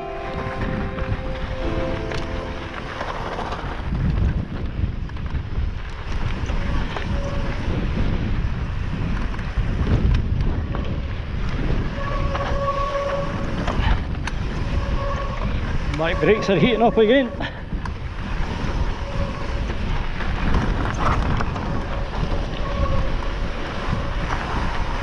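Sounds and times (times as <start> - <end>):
wind buffeting microphone: 0.0 - 25.0
bike tyres rumbling over rocks: 3.0 - 15.9, 18.0 - 25.0
disc brakes squealing: 14.6 - 17.4, 21.5 - 24.3.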